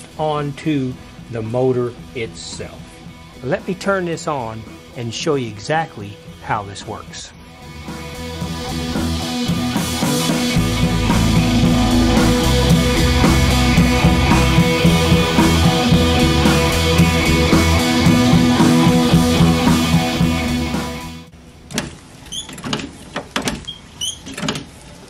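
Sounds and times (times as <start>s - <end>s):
rock music with guitar and drums: 1.0s - 5.4s, 7.4s - 21.3s.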